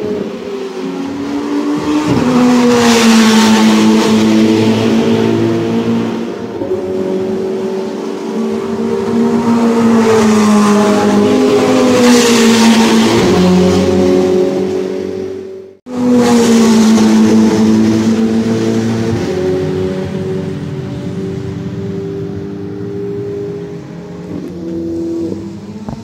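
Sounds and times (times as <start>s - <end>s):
race car engine passing: 0.0s - 26.0s.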